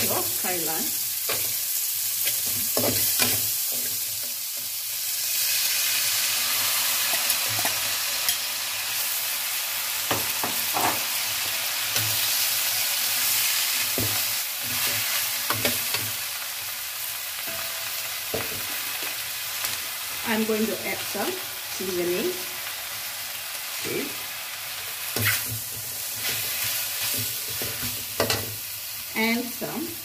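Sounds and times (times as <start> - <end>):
greens sizzling in hot oil: 0.0 - 30.0.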